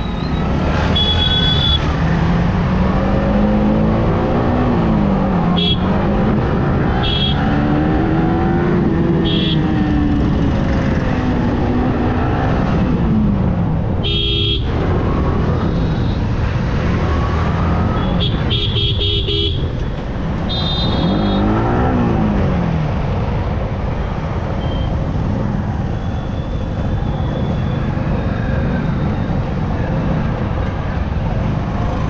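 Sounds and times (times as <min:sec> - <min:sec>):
vehicle horns honking: 0:00.8 - 0:01.9, 0:05.6 - 0:05.9, 0:06.9 - 0:07.5, 0:09.2 - 0:09.6, 0:14.0 - 0:14.7, 0:18.0 - 0:19.7, 0:20.5 - 0:21.7.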